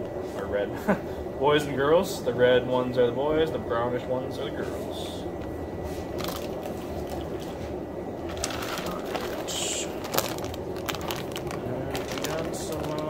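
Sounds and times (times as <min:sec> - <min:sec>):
low background hum: 0:00.0 - 0:13.0
plastic bags rustling: 0:06.0 - 0:13.0.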